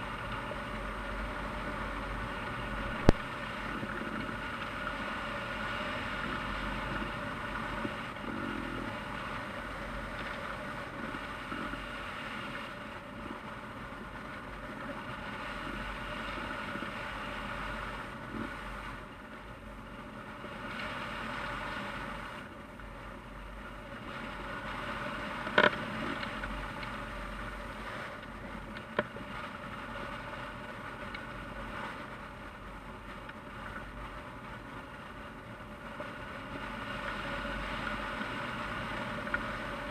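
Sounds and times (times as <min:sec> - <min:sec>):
wind buffeting camera: 0:02.0 - 0:05.3.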